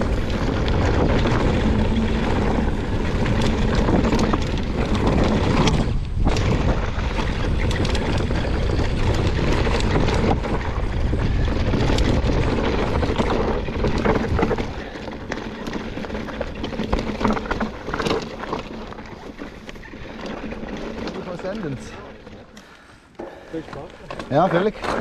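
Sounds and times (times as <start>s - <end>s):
wind buffeting microphone: 0.0s - 18.1s
bike clicking and rattling: 0.0s - 25.0s.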